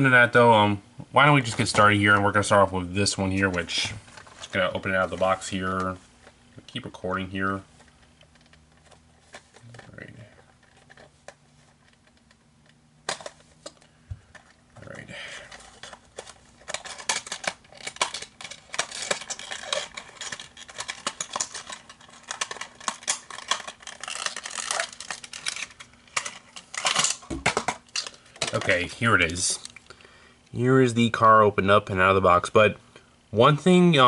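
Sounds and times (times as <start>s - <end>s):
packaging clicks and crackles: 6.7s - 30.0s.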